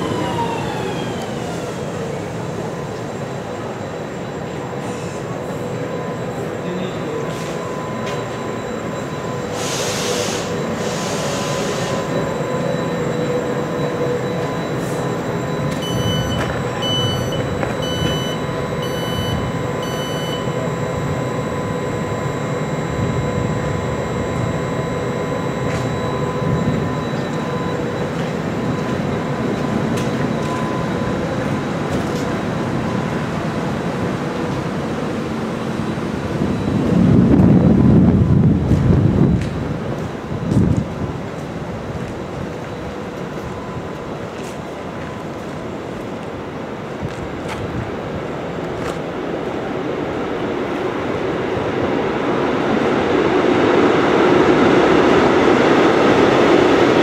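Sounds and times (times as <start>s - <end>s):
electric train rumbling: 0.0s - 57.0s
high electronic beeps: 3.9s - 32.2s
electrical equipment hum: 5.6s - 57.0s.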